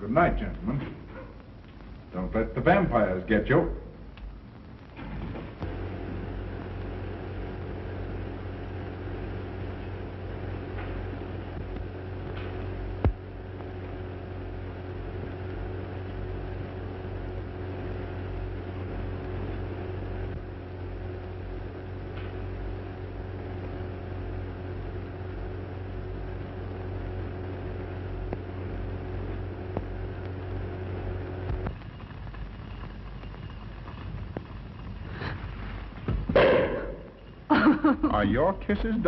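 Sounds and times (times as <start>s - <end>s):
film soundtrack hum and hiss: 0.0s - 39.0s
faint clicks: 1.4s - 2.2s, 4.0s - 5.0s.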